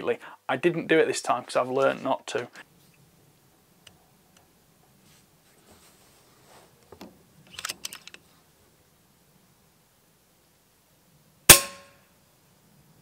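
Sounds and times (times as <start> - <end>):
air rifle mechanical clicks: 7.5 - 8.2.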